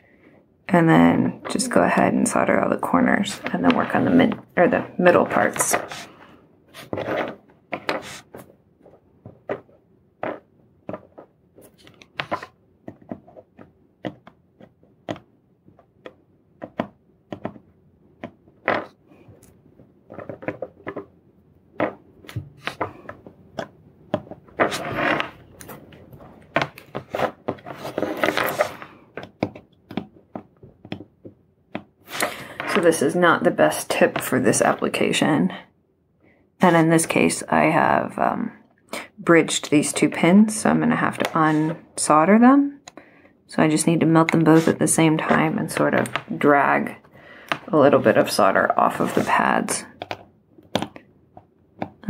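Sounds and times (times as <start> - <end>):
scraping rustles: 24.6 - 29.0.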